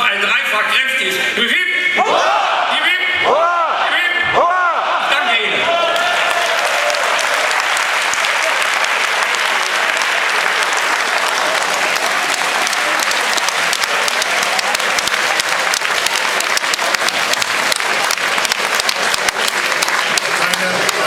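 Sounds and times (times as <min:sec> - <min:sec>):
audience applauding: 0:05.7 - 0:21.0
single claps: 0:06.8 - 0:21.0.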